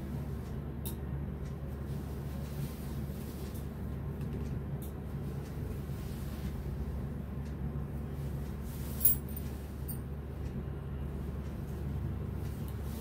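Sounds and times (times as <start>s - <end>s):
low room hum: 0.0s - 13.0s
fabric being handled: 8.2s - 10.0s.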